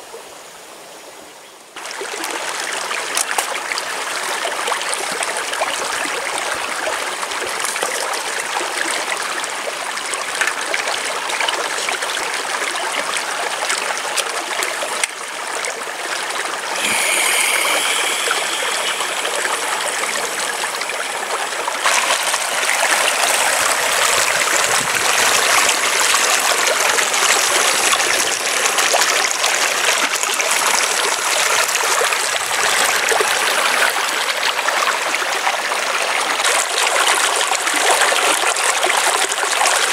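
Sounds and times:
stream running over rocks: 1.7 - 39.9.

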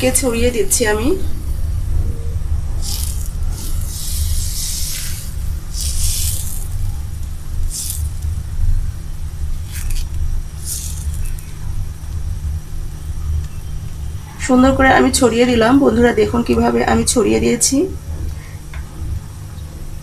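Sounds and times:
low hum: 0.0 - 20.0
ladle scraping batter on griddle: 2.8 - 8.4.

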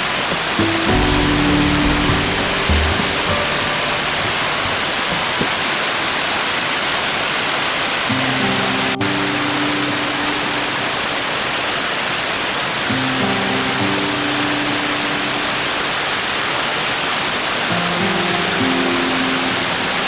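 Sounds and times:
waterfall rushing: 0.0 - 20.0
background music: 0.6 - 5.1.

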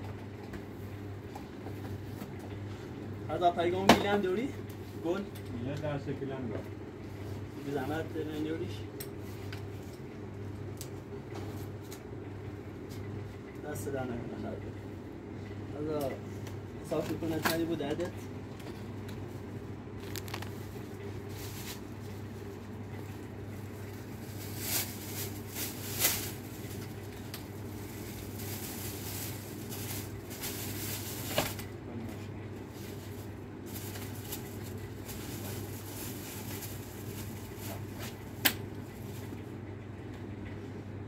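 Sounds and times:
steady low hum: 0.0 - 41.0
plastic bags rustling: 20.0 - 31.8, 32.6 - 39.5.

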